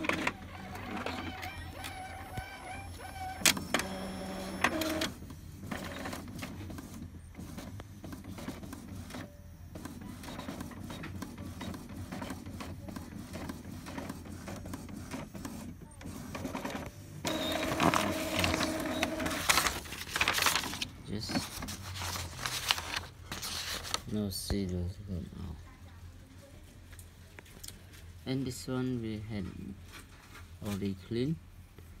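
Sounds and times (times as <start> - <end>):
printer motor whine: 0.0 - 5.1, 17.3 - 19.6
printer mechanism whirring: 0.0 - 21.6.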